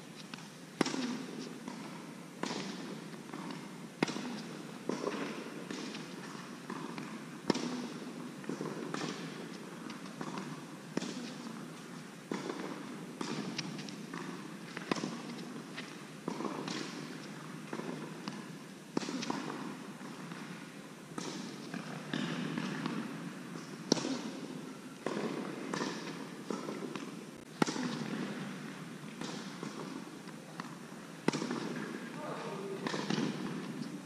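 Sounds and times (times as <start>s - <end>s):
tennis ball hits: 32.8s - 33.8s.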